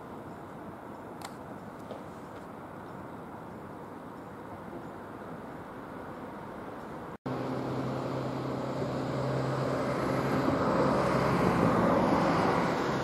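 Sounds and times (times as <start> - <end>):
motor vehicle passing: 7.3 - 13.0.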